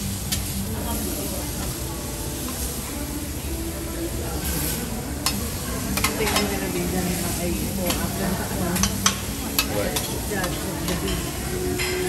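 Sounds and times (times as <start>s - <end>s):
faint murmur of voices: 0.0s - 12.0s
utensils and plates clinking: 4.4s - 12.0s.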